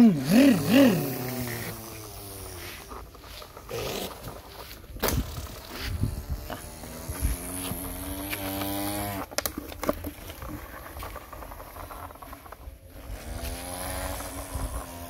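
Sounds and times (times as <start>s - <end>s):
person imitating truck engine: 0.0s - 3.0s, 5.0s - 9.2s
toy truck pushed through sand: 0.0s - 15.0s.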